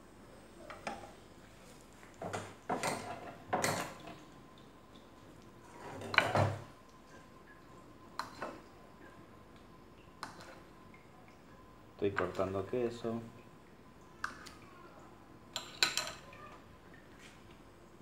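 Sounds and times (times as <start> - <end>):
utensils and dishes clattering: 2.3 - 4.2.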